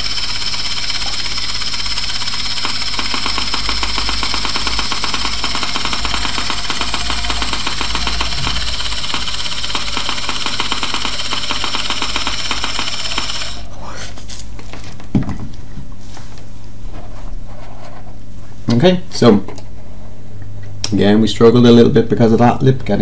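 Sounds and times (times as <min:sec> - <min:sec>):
scanner buzzing rattle: 0:00.0 - 0:13.7.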